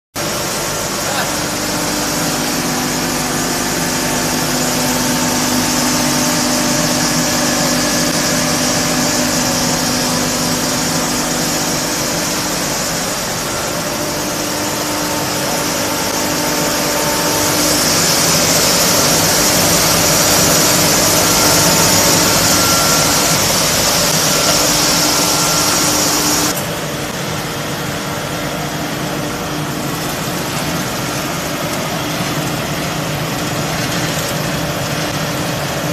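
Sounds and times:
loud machine hum: 0.2s - 35.9s
strong high hiss: 0.4s - 26.5s.

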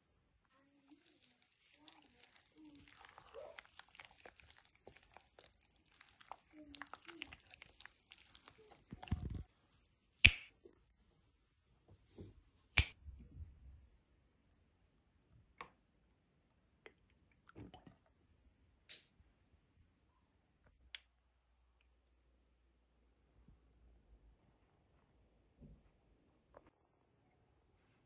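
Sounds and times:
spatula stirring thick batter: 0.5s - 9.5s.

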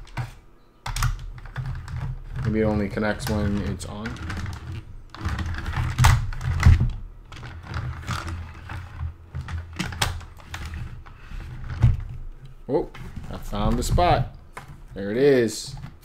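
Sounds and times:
dull handling rumble: 2.2s - 16.0s.

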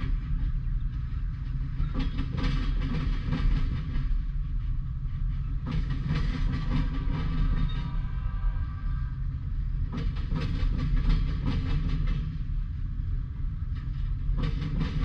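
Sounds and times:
wheels clunking over rail joints: 0.0s - 8.0s, 13.6s - 15.0s
freight train rumbling past: 0.0s - 15.0s.

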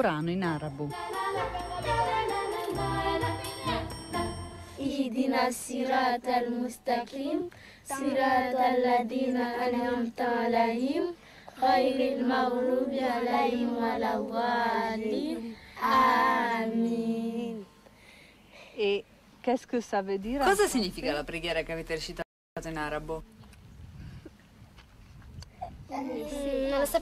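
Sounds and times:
background music: 0.0s - 4.9s
children chanting in unison: 4.8s - 17.6s.

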